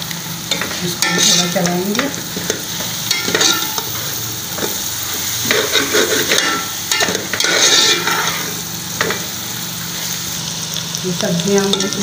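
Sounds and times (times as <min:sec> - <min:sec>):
vegetables sizzling in hot oil: 0:00.0 - 0:12.0
metal spoon scraping a metal pot: 0:00.5 - 0:01.6, 0:03.1 - 0:03.9, 0:05.4 - 0:09.2.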